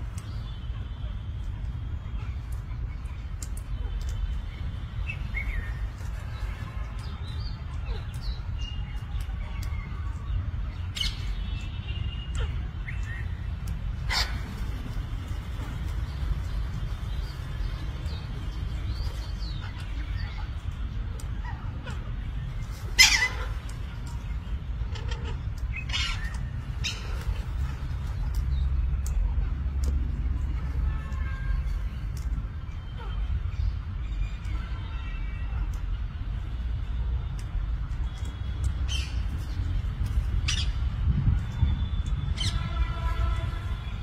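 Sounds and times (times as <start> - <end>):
parakeets chirping and calling: 10.6 - 28.6, 38.8 - 41.0, 42.4 - 43.3
parakeets screeching: 14.0 - 14.8, 19.0 - 20.6, 22.8 - 24.0, 24.8 - 27.9, 40.4 - 40.8, 42.4 - 43.0.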